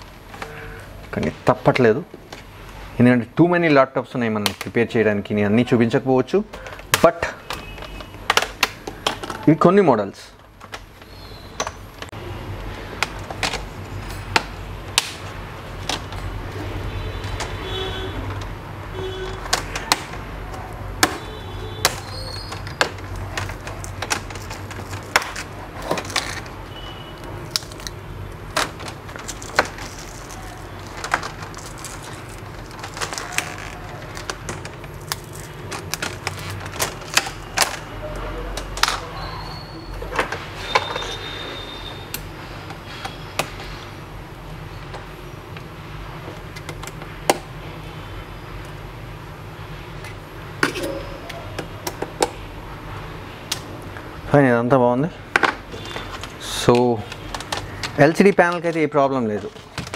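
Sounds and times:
low outdoor background noise: 0:00.0 - 0:59.9
plastic clips clicking and snapping: 0:06.5 - 0:09.5, 0:19.2 - 0:26.6, 0:27.2 - 0:39.1, 0:55.4 - 0:59.9.

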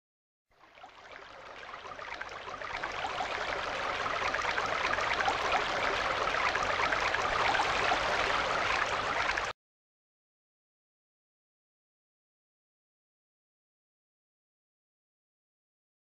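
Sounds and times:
steady rushing water-like noise: 0:00.7 - 0:09.5.

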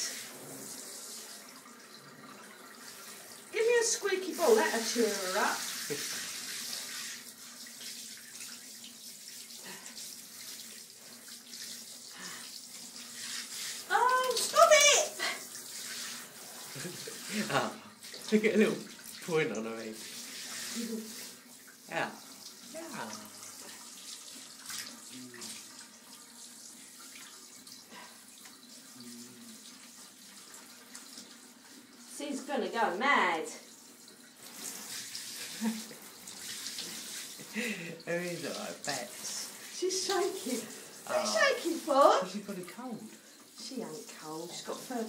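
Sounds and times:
shower spraying water: 0:00.0 - 0:45.0.

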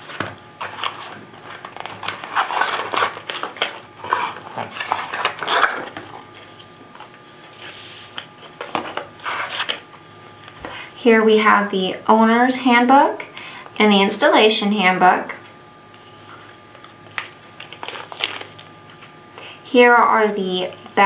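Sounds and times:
plastic bags rustling and crinkling: 0:00.0 - 0:09.9, 0:16.0 - 0:19.2.

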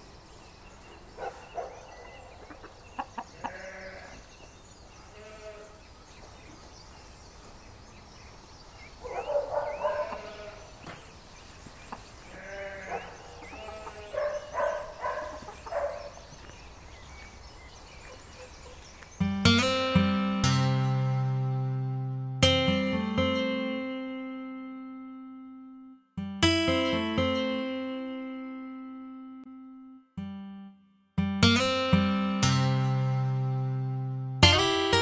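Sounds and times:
farmyard animals calling: 0:01.2 - 0:06.3, 0:09.0 - 0:11.0, 0:11.7 - 0:16.5.

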